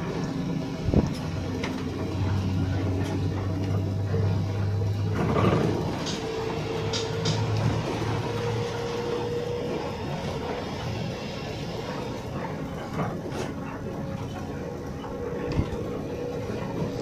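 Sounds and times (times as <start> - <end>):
steady higher tone: 0.0 - 12.6
coach engine and road drone: 0.0 - 17.0.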